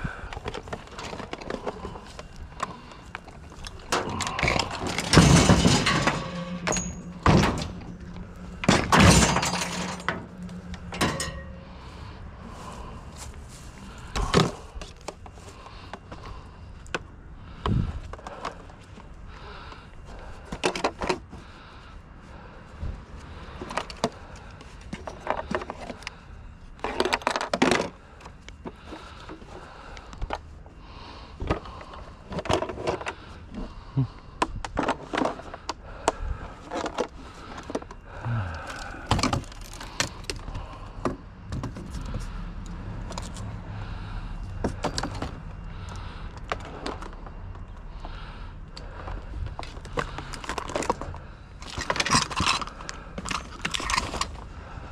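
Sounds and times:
low rumble: 1.8s - 14.8s
junk knocking and clattering: 2.6s - 11.8s, 44.6s - 45.6s.

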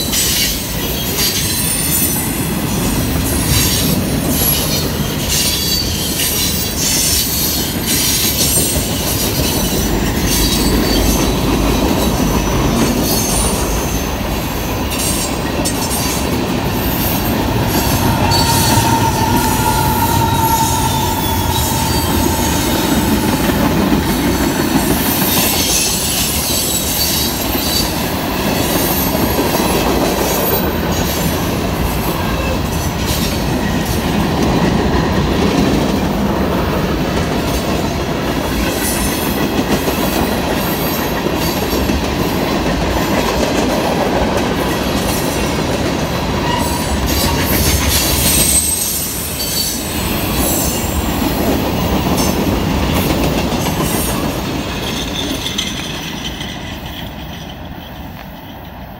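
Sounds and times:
train wheels rumbling on rail: 0.0s - 58.9s
high-pitched wheel squeal: 16.8s - 27.3s.

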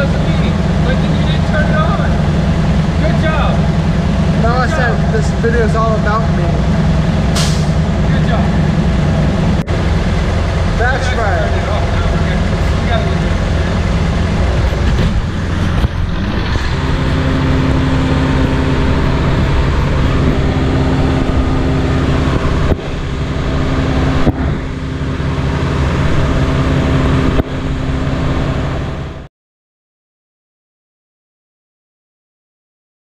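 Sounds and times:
diesel truck engine idling: 0.0s - 29.3s
sharp knocks: 14.6s - 16.6s.

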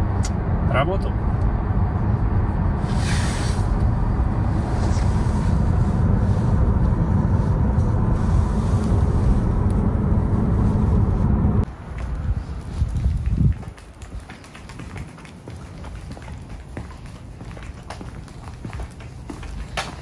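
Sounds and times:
road and tyre rumble in car: 0.0s - 20.0s
brief rushing hiss: 2.8s - 3.8s.

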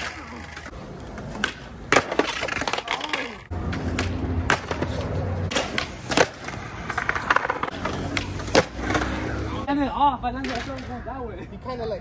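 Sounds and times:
skateboard landing clack: 0.0s - 9.1s
skateboard wheels rolling: 0.0s - 9.8s.

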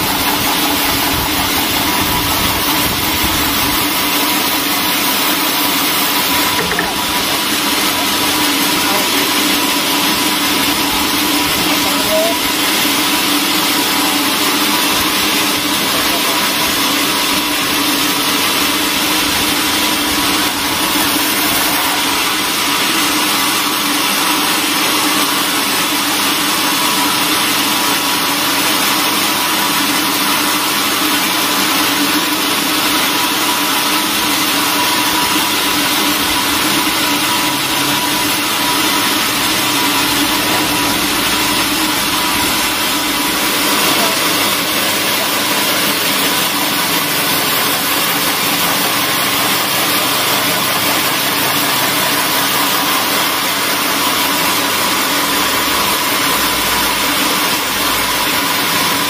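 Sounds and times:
steady hum: 34.7s - 50.0s.

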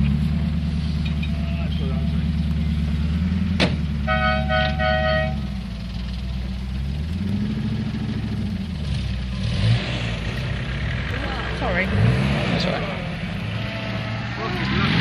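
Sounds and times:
car engine running: 0.0s - 15.0s
two-tone vehicle horn beeps: 4.0s - 5.6s.

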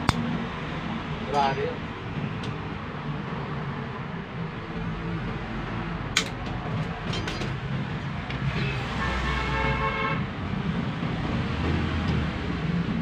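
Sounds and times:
traffic hum: 0.0s - 13.0s
sharp metallic click: 6.2s - 6.4s.

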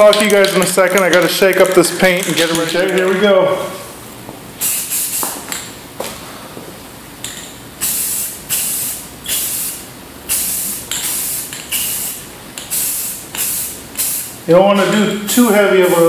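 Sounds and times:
spray can hissing bursts: 4.6s - 5.5s, 7.8s - 14.4s.

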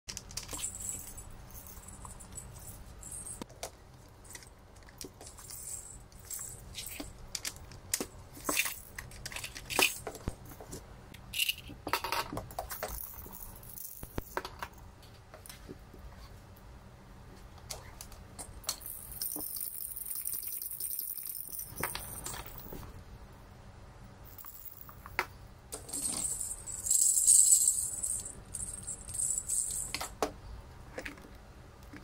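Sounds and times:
plastic rattles clattering: 4.3s - 10.3s.

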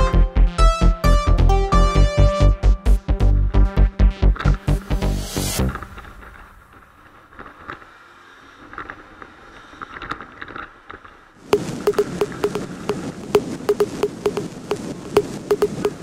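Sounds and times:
road and wind noise: 4.3s - 16.0s
rapid irregular ticking: 11.5s - 16.0s
electronic music: 11.6s - 14.5s, 15.2s - 16.0s.

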